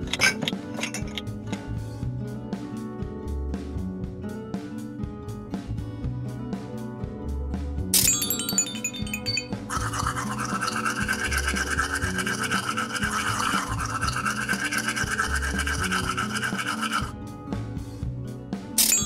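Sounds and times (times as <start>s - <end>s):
motorized brush buzzing: 9.7s - 17.1s.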